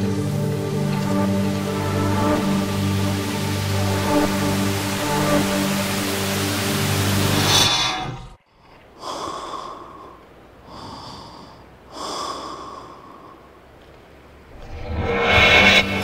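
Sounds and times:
music: 0.0 - 8.1, 14.6 - 16.0.

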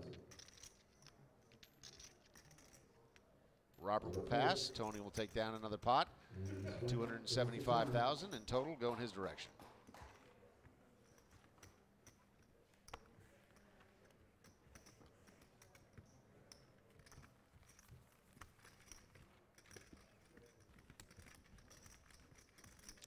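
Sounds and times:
poker chips clicking: 17.0 - 23.0.

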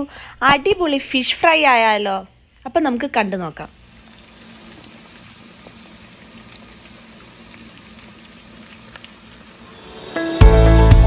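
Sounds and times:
small oil crackles: 3.6 - 10.0
fish sizzling in hot oil: 3.7 - 10.2.

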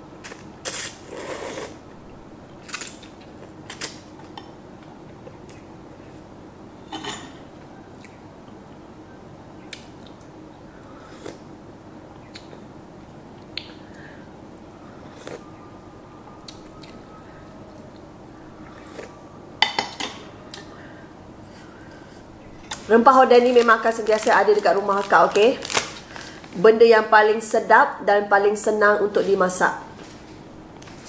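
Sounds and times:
chewing: 5.2 - 5.7, 7.9 - 8.2, 15.1 - 15.6, 16.4 - 18.0, 18.6 - 19.2
dishes clattering: 6.9 - 7.4.

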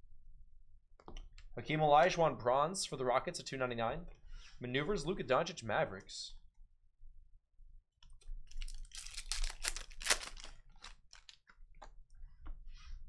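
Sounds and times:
foil wrapper tearing and crinkling: 8.5 - 11.4
cards clicking and rustling: 8.5 - 11.5.

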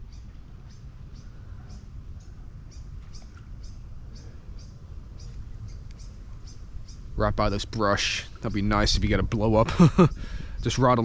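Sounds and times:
small bird chirping: 0.0 - 7.3
wind rumble on microphone: 0.0 - 11.0.

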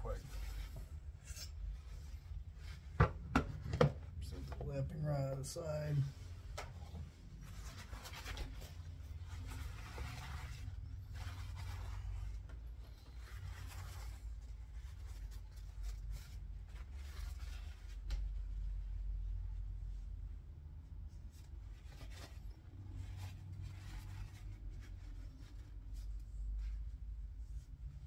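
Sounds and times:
low steady hum: 0.0 - 28.0
cloth wiping strokes: 6.0 - 20.4, 21.1 - 28.0.

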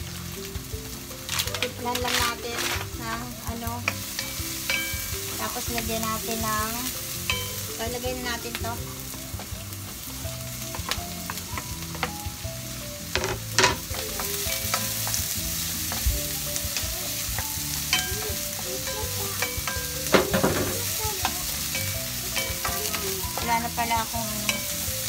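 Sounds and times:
sausages and onions sizzling: 0.0 - 25.0
wooden spatula scraping and knocking: 1.3 - 5.5.

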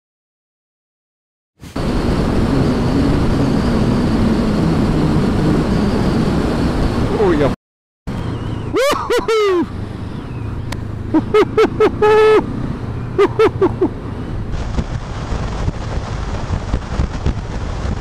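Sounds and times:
wind noise: 1.6 - 7.5, 12.2 - 18.0
motorcycle engine: 1.8 - 7.1.

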